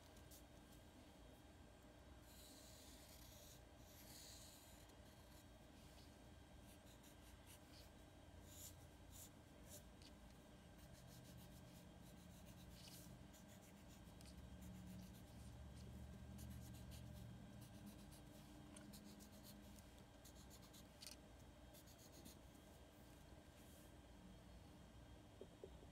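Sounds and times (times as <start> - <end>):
steady low hum: 0.0 - 25.9
marker scratching on paper: 2.3 - 5.5, 6.7 - 10.1, 10.8 - 22.4.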